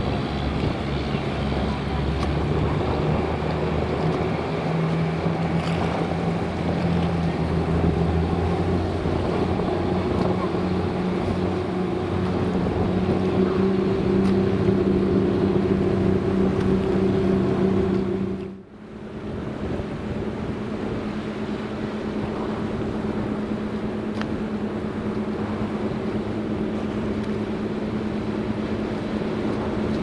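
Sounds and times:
boat engine running: 0.0s - 30.0s
water wash: 0.0s - 30.0s
wind noise: 19.1s - 30.0s.

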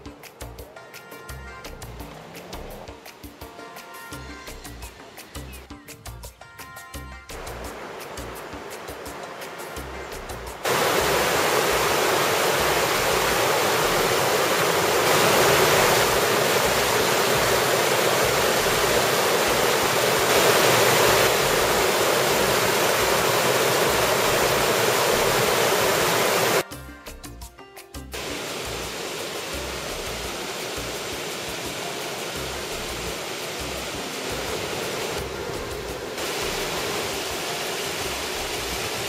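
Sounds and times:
waterfall splashing over rocks: 7.3s - 26.7s, 28.2s - 39.0s.

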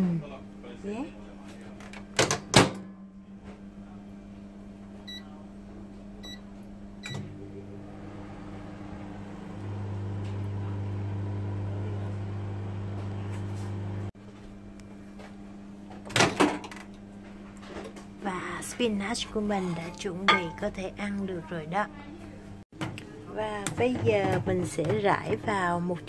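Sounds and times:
microwave oven humming: 0.0s - 26.0s.

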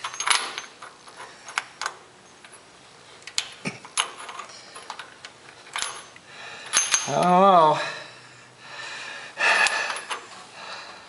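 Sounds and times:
light metal clinks and knocks: 0.0s - 7.6s.

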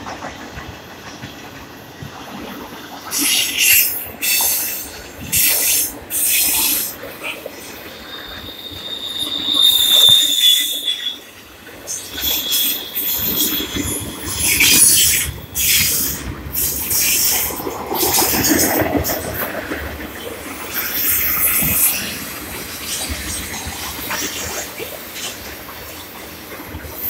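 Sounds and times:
freight train rattling on rails: 0.0s - 27.0s
high wheel squeal: 3.2s - 17.4s.

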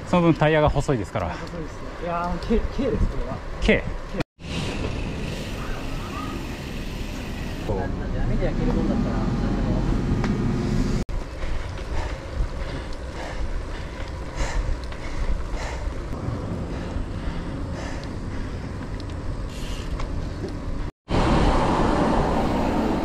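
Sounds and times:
tyre noise on road: 8.6s - 23.0s.

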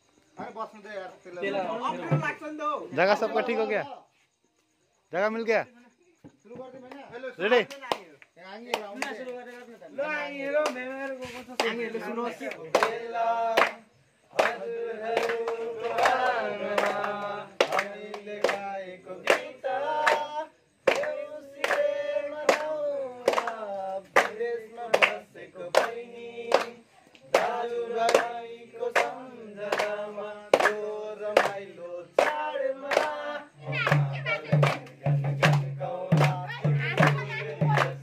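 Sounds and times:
young men singing together: 1.4s - 2.4s, 8.8s - 38.0s
hands clapping in time: 6.7s - 9.7s, 10.6s - 38.0s.

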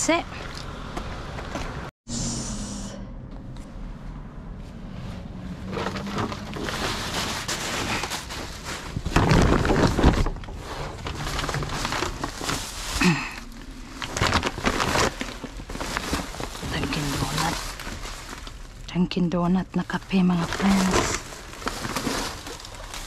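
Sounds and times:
bags rustling: 5.6s - 18.9s, 20.2s - 23.0s
items knocking and clattering: 5.7s - 13.3s.

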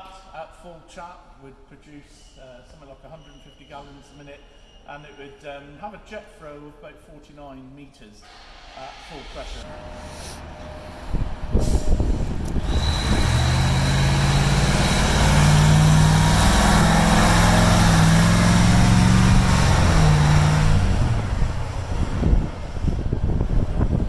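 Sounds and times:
tyre hiss on wet road: 8.3s - 10.4s
diesel truck engine: 9.6s - 24.0s.

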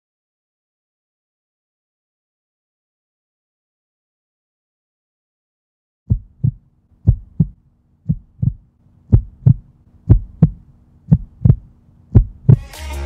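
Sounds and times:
heartbeat thumps: 6.1s - 12.7s
faint steady hum: 6.1s - 12.9s.

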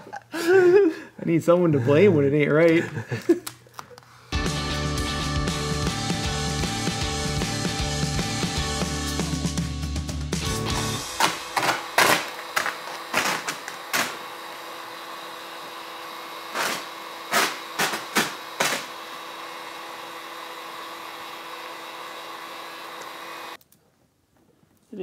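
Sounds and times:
heat gun blowing: 10.6s - 23.6s.

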